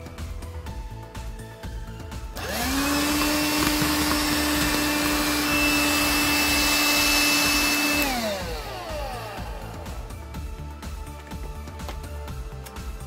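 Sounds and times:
vacuum switch: 2.4 - 9.1
handheld vacuum motor whine: 2.4 - 10.2.

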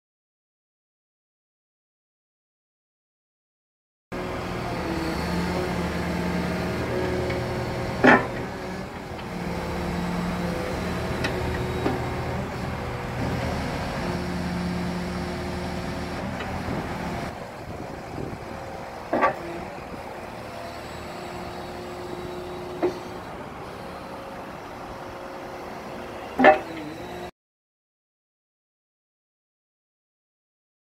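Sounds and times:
excavator diesel engine: 4.1 - 27.3.

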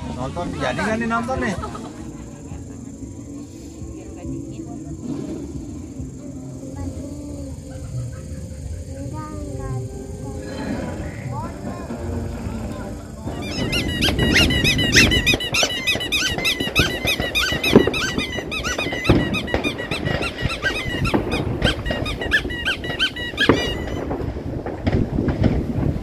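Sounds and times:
firework bangs: 10.8 - 26.0
crackling firework pops: 12.7 - 26.0
whistling firework chirps: 13.2 - 26.0.

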